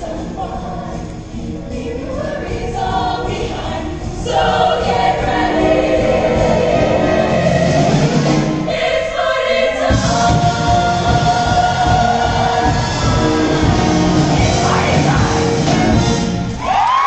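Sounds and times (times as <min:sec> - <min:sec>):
female choir singing: 0:00.0 - 0:16.0
live band playing: 0:09.9 - 0:16.6.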